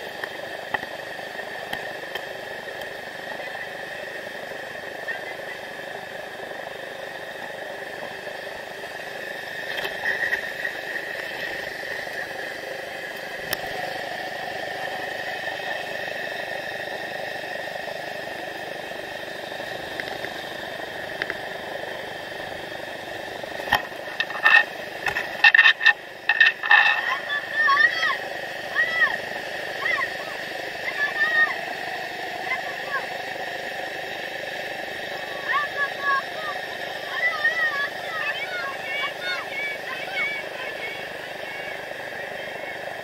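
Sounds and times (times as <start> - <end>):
constant high buzz: 0.0 - 43.0
whitewater river rapids: 0.0 - 43.0.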